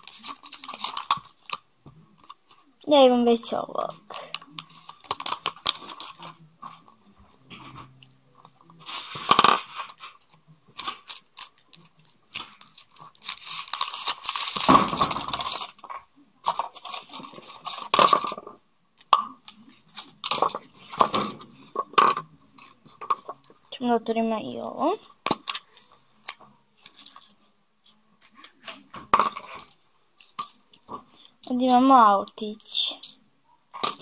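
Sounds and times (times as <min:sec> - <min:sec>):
foil wrapper crinkling: 0:00.0 - 0:01.6, 0:08.4 - 0:18.4.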